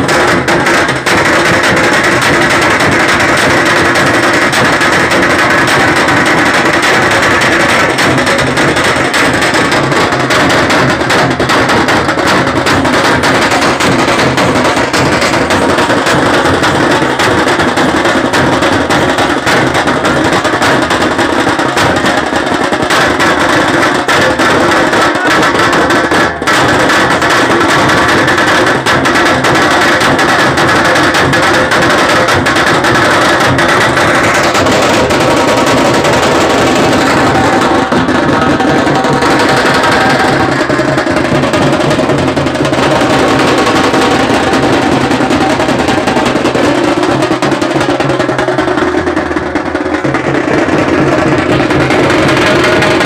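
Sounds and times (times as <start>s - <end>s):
loud fast festival drumming: 0.0s - 53.0s.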